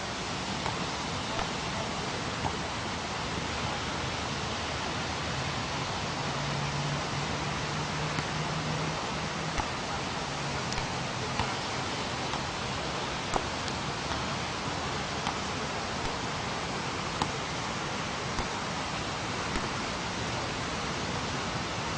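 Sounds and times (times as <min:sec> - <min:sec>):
wind: 0:00.0 - 0:21.9
football being kicked: 0:09.6 - 0:09.9, 0:10.7 - 0:11.7, 0:18.4 - 0:18.6, 0:19.5 - 0:19.8.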